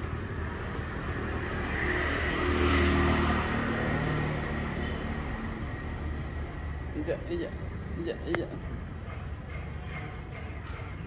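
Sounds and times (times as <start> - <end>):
vehicle driving past: 0.0 - 8.8.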